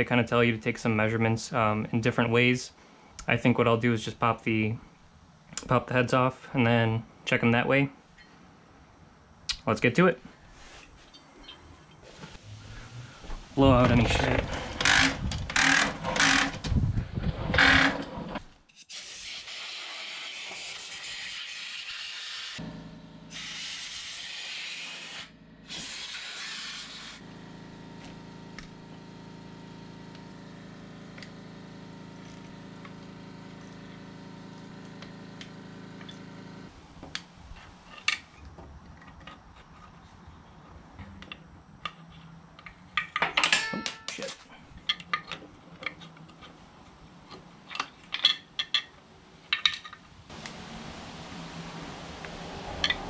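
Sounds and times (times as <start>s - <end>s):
blown air hiss: 12.0s - 13.8s, 18.9s - 22.6s, 23.3s - 27.2s
metal tools clinking on engine: 43.0s - 46.0s
jingling clinks: 43.4s - 44.6s.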